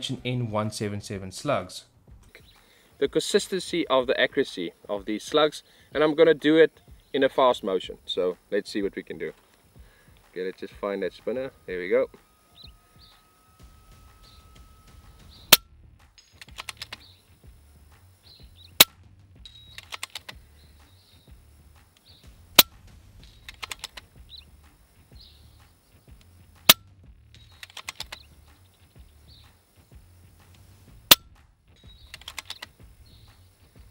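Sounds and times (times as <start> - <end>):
small metallic clicks rattling: 16.2 - 17.1, 19.4 - 20.4, 23.2 - 24.1, 27.4 - 28.3, 31.8 - 32.8.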